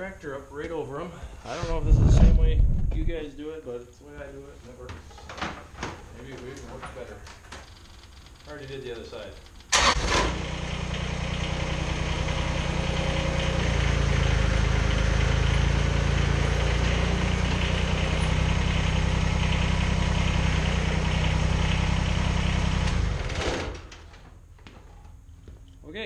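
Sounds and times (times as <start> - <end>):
tractor diesel engine running: 9.7 - 23.4.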